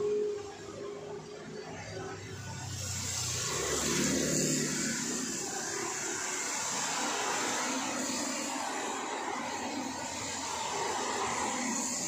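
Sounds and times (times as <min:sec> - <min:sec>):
motor scooter passing: 0:01.9 - 0:06.0
car passing: 0:01.9 - 0:12.0
tyre hiss on wet road: 0:02.4 - 0:12.0.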